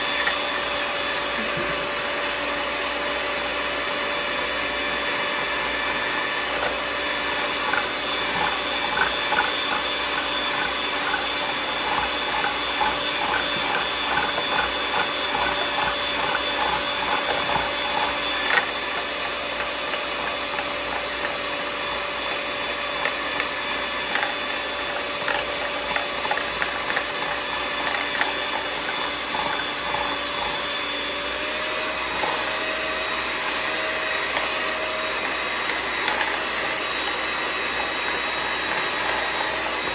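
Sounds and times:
electric hand mixer running: 0.0s - 39.9s.

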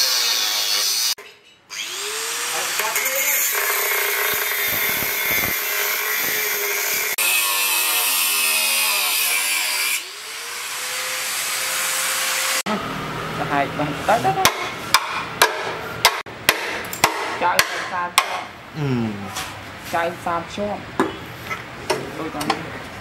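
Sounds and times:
angle grinder cutting steel: 0.0s - 12.7s.

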